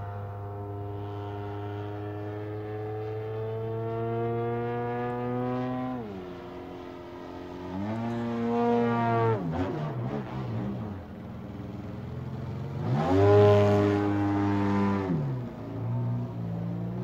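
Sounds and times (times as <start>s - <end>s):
model plane engine drone: 0.0s - 9.4s.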